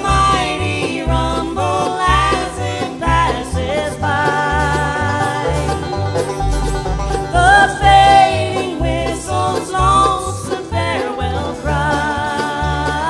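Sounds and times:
banjo: 0:00.0 - 0:13.0
fiddle lead with sliding notes: 0:00.0 - 0:13.0
guitar: 0:00.0 - 0:13.0
upright bass: 0:00.0 - 0:13.0.

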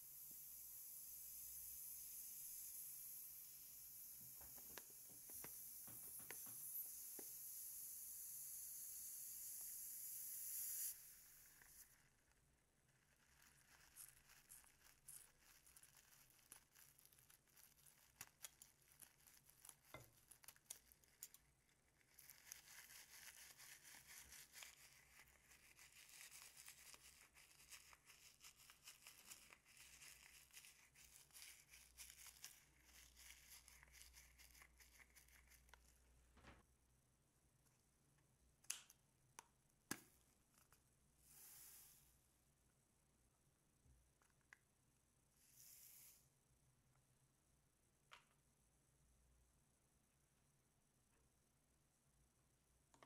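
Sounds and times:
soft crackling and rubbing: 0:11.4 - 0:36.6.

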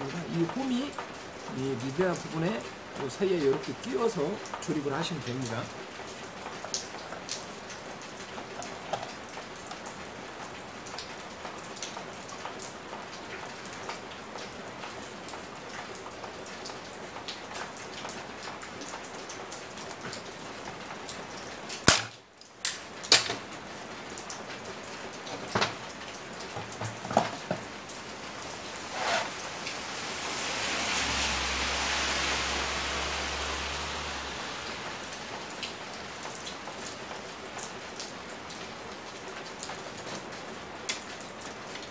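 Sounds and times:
sharp knock: 0:21.9 - 0:22.2
steady hiss: 0:27.7 - 0:37.5.

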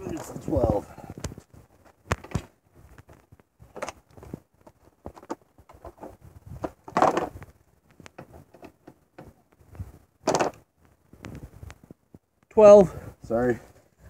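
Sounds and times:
scraping knocks on pavement: 0:02.0 - 0:07.5.

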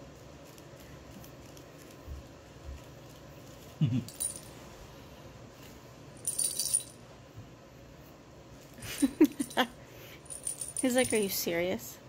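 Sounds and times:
cat toy bell jingling and rattling: 0:04.1 - 0:04.6, 0:06.2 - 0:07.0, 0:09.2 - 0:11.5.

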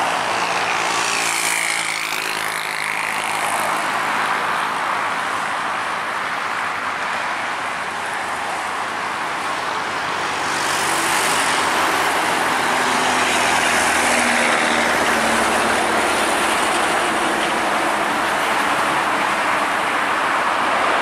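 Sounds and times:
jet engines roaring: 0:07.2 - 0:21.0.

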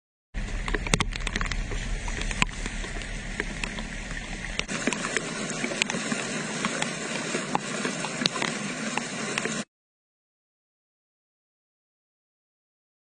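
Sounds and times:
low rumble: 0:00.4 - 0:06.4
floodwater rushing: 0:00.4 - 0:09.7.

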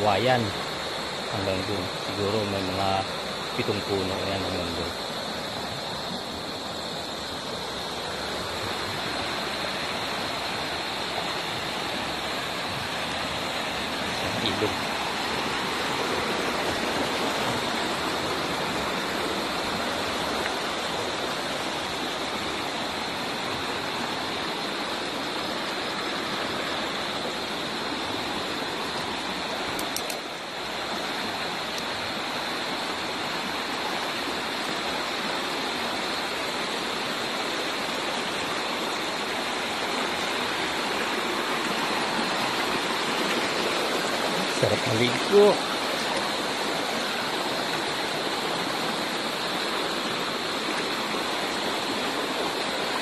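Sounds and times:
river rushing over stones: 0:00.0 - 0:53.0.

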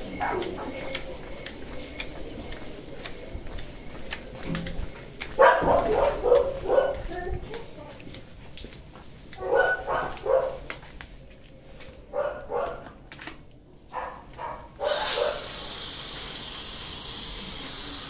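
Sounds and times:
dog barking: 0:05.4 - 0:07.2, 0:09.4 - 0:10.7, 0:12.1 - 0:13.0, 0:13.9 - 0:15.5
hose foamer spraying hiss: 0:14.8 - 0:18.0.

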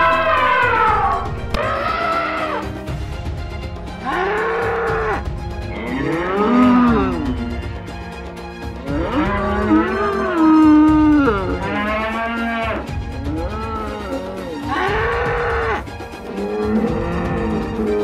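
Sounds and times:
background music: 0:00.0 - 0:18.0
bull mooing: 0:04.0 - 0:07.5, 0:08.8 - 0:18.0.

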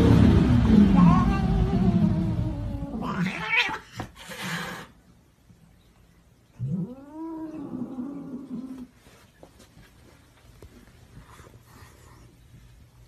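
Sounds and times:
cat hissing: 0:00.7 - 0:05.0
cats yowling: 0:01.0 - 0:03.9.

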